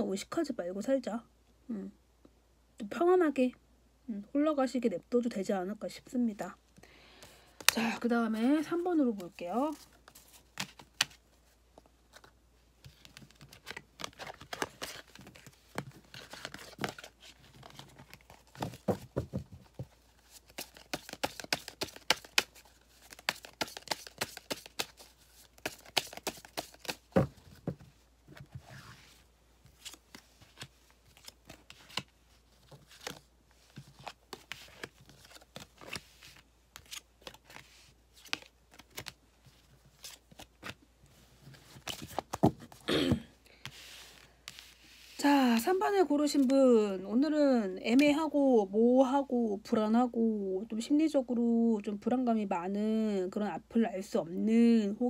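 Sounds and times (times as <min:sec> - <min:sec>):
cards shuffling and sliding: 0:09.0 - 0:42.8, 0:43.5 - 0:45.2.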